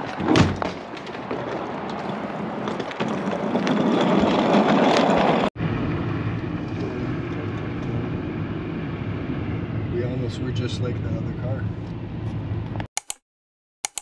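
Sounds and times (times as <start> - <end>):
car driving hum: 5.0 - 12.9.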